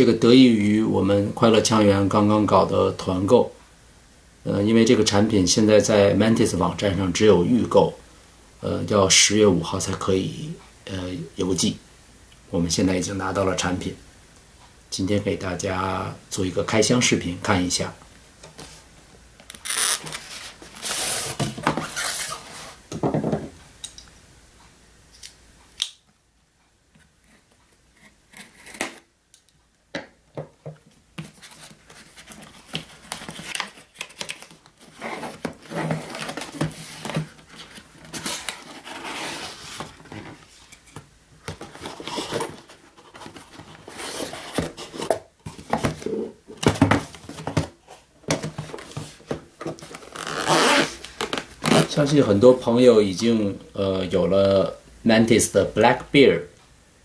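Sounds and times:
cardboard rubbing and rustling: 19.6s - 22.8s, 31.2s - 52.0s.

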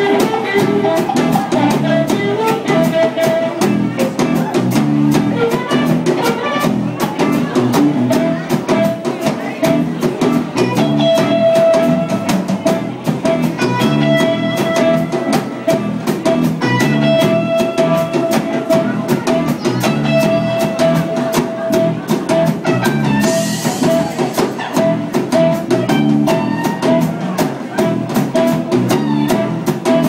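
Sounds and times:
drum kit beat: 0.0s - 30.0s
live band playing: 0.0s - 30.0s.

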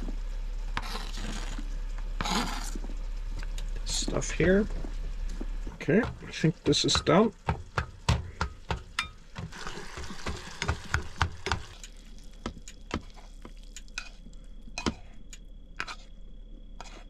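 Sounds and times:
faint sizzle: 0.0s - 17.0s
utensil scraping frying pan: 8.2s - 14.2s, 15.8s - 16.1s.

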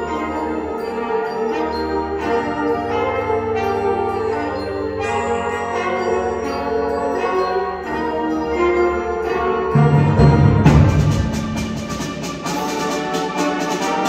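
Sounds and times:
mallet percussion notes: 0.0s - 14.0s
concert band playing chords: 9.7s - 14.0s.

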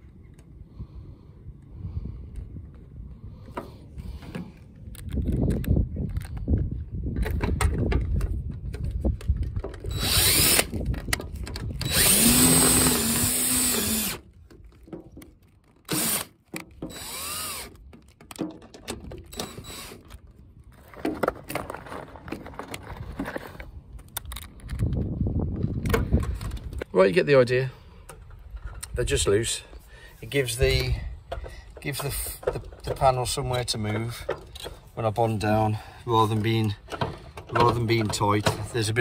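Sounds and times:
cordless drill driving screws: 9.8s - 10.9s, 11.7s - 14.3s, 15.8s - 17.8s, 19.3s - 20.2s.

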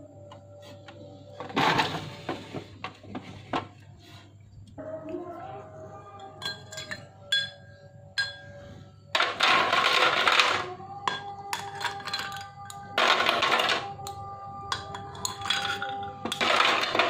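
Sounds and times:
ice clinking against glass: 6.4s - 8.5s.

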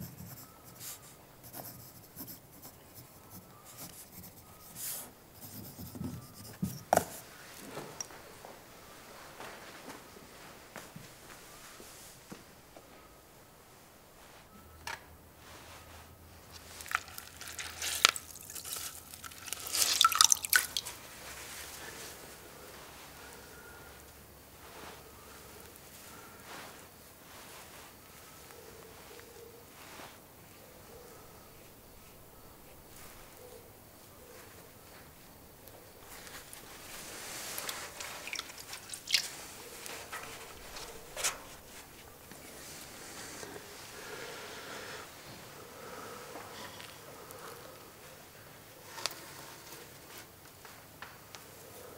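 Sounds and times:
water splashing in metal bucket: 16.9s - 21.0s, 38.0s - 39.3s
bird feathers rustling: 36.0s - 43.5s.

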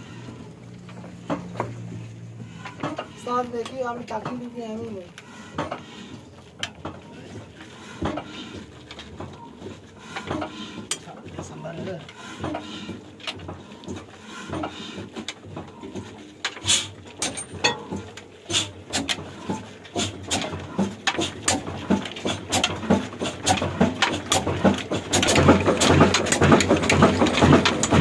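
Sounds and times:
diesel engine knocking: 12.4s - 28.0s.

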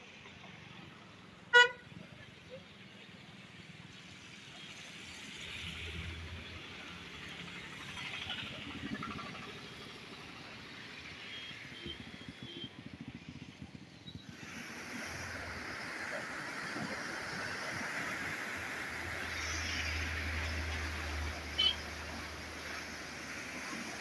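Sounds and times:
passing road vehicles: 0.0s - 24.0s
floodwater rushing: 14.3s - 24.0s.

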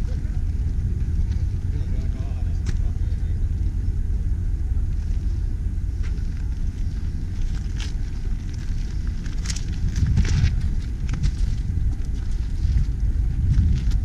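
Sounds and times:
wind buffeting microphone: 0.0s - 14.0s
footsteps on gravel: 4.9s - 14.0s.

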